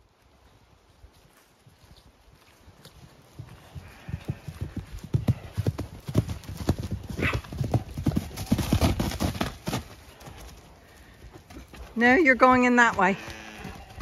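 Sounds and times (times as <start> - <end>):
horse hoofbeats on grass: 0.0 - 14.0.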